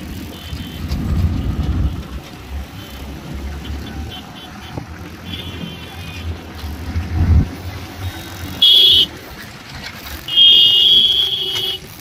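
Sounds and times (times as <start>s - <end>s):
motorcycle engines running: 0.0s - 12.0s
wind buffeting microphone: 0.8s - 2.7s.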